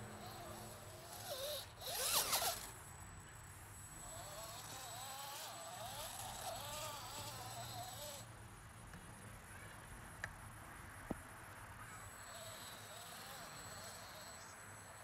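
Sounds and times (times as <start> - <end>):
electric motors whining: 0.0 - 2.9, 3.8 - 8.3, 12.0 - 15.0.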